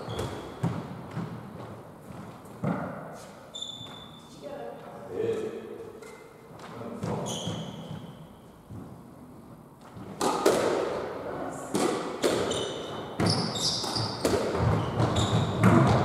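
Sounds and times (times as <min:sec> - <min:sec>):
squash ball hitting rackets and walls: 0:00.0 - 0:04.1, 0:05.4 - 0:16.0
shoes squeaking on wooden floor: 0:00.0 - 0:05.1, 0:05.9 - 0:09.0, 0:12.4 - 0:16.0.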